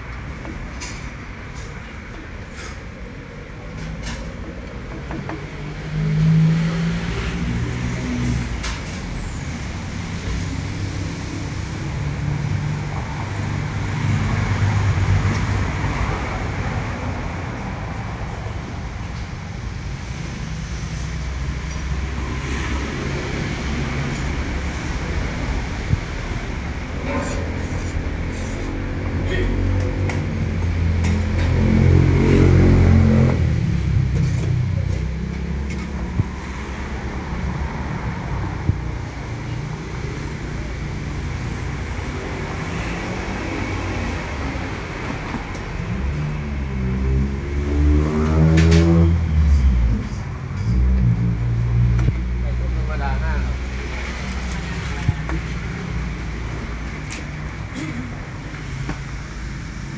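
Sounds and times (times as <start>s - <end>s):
vehicle engine revving: 28.8s - 40.6s, 42.1s - 52.4s.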